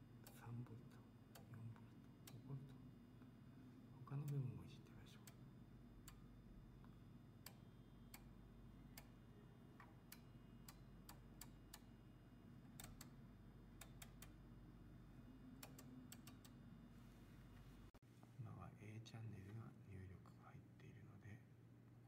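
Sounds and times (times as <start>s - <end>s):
low steady hum: 0.0s - 22.0s
knob clicks: 12.8s - 13.2s, 15.6s - 16.6s.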